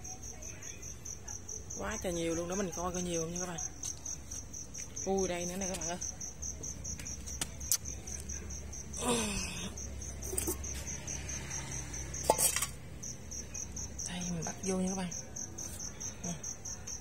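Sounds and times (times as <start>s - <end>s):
cricket chirping: 0.0s - 17.0s.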